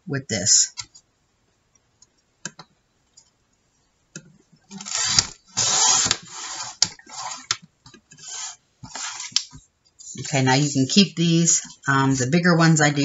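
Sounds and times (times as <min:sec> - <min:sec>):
paper trimmer scraping along rail: 0:04.8 - 0:07.5, 0:08.2 - 0:09.4.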